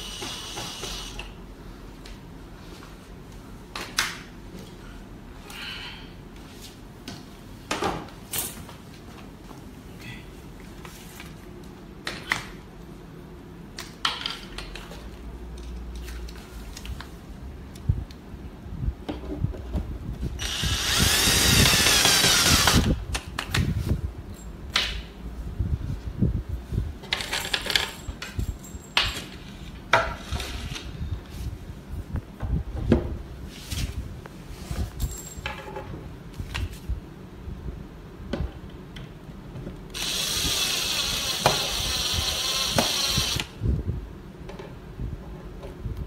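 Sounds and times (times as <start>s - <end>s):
cordless drill driving screw: 0.1s - 1.3s, 20.4s - 23.0s, 40.0s - 43.5s.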